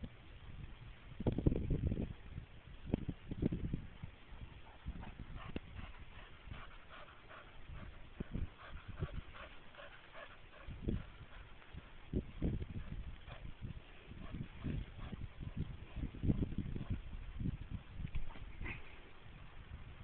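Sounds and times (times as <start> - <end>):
dog panting: 4.3 - 12.0, 12.7 - 13.5, 14.1 - 17.0.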